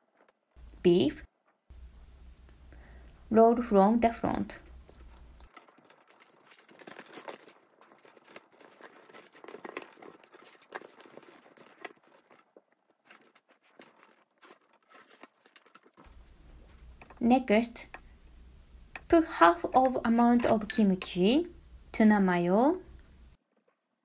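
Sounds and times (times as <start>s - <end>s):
bamboo mat rustling and clicking: 4.6s - 18.1s.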